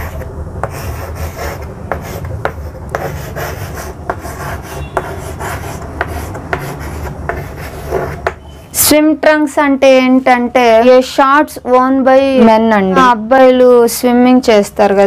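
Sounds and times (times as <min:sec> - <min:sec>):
chalk scraping on blackboard: 0:00.0 - 0:08.4
chalk tapping on board: 0:00.0 - 0:08.4.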